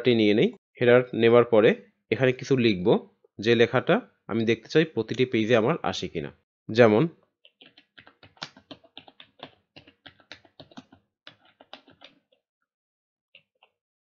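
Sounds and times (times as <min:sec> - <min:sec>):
computer keyboard typing: 0:07.5 - 0:12.4.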